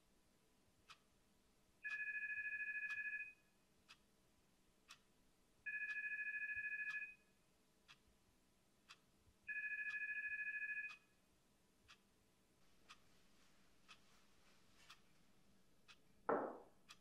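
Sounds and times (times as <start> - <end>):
clock ticking: 0.9 - 1.1, 4.9 - 5.1, 8.8 - 9.1, 11.9 - 12.1, 12.7 - 17.0
electronic telephone ringing: 1.9 - 3.4, 5.7 - 7.2, 9.5 - 11.1.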